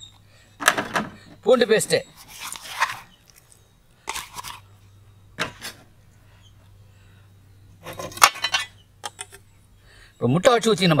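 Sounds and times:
plastic cup and steel plate scraping: 2.1s - 4.7s
clattering scrape: 7.8s - 8.8s.

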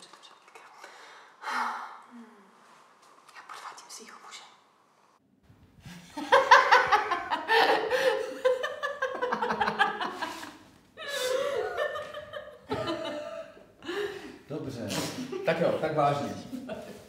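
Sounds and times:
woman laughing hard: 6.0s - 13.6s.

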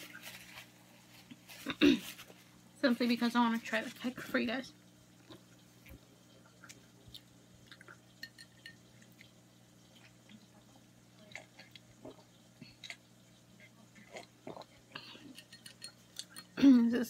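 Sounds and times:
low steady hum: 0.0s - 17.0s
person sipping and swallowing: 11.4s - 13.0s, 14.0s - 15.4s.

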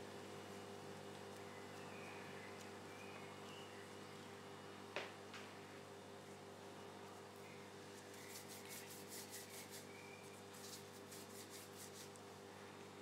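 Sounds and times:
low steady hum: 0.0s - 13.0s
gloved hands rubbing dough: 8.0s - 12.3s.

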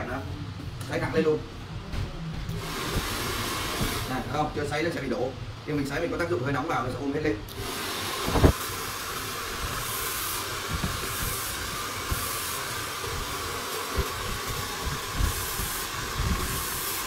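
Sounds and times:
hair dryer blowing: 2.5s - 4.5s, 7.5s - 17.0s.

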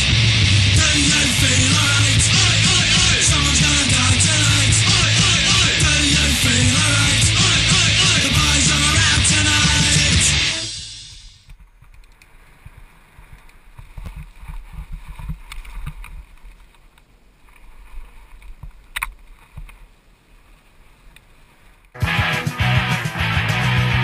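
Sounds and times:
rock music: 0.0s - 11.4s, 22.0s - 24.0s.

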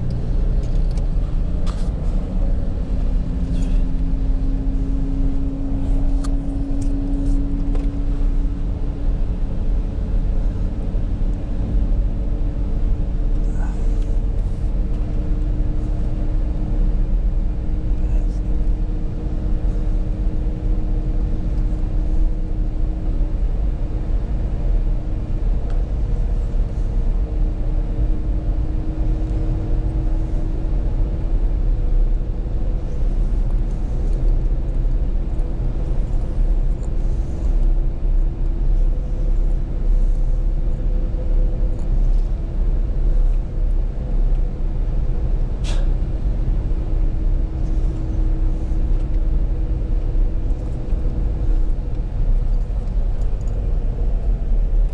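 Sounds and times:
car engine and road rumble: 0.0s - 54.9s.

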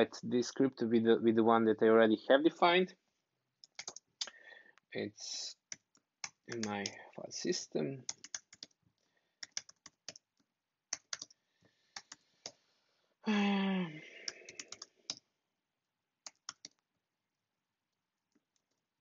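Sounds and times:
computer keyboard typing: 3.6s - 4.1s, 5.6s - 7.0s, 8.0s - 8.8s, 9.4s - 11.4s, 12.0s - 12.6s, 14.2s - 15.2s, 16.2s - 16.8s.

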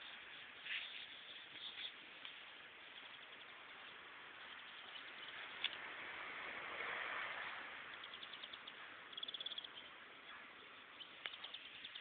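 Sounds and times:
soft rustling in grass: 0.0s - 5.8s.

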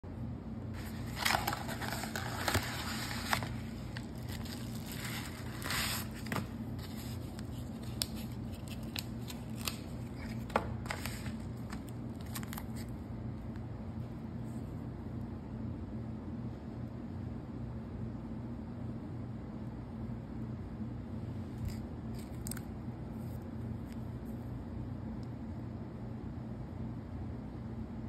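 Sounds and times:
steady low hum: 0.0s - 28.0s
paper crinkling and tearing: 0.8s - 13.0s.

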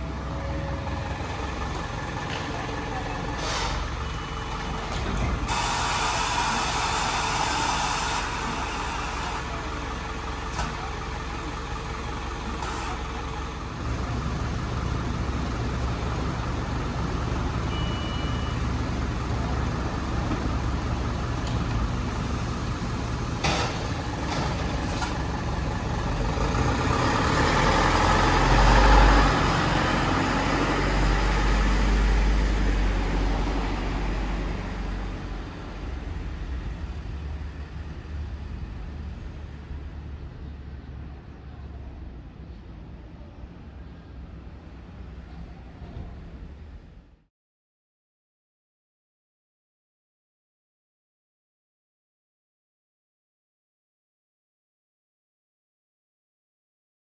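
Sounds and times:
bus driving off: 0.0s - 47.3s
diesel bus engine idling: 0.0s - 47.3s
brief high beep: 17.7s - 18.7s.

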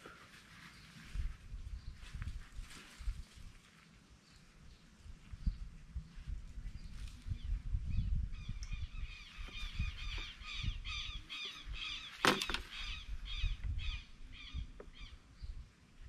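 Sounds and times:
bird calling: 8.4s - 15.3s.

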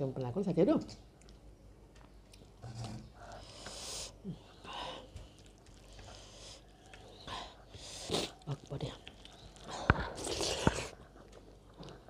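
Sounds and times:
person breathing and sniffing: 3.3s - 5.1s, 6.0s - 8.4s.

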